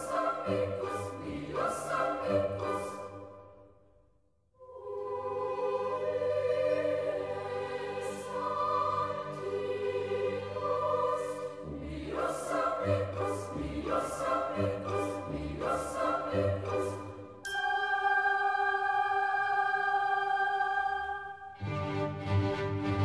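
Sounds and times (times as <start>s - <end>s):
choir singing long chords: 0.0s - 3.6s, 4.6s - 23.0s.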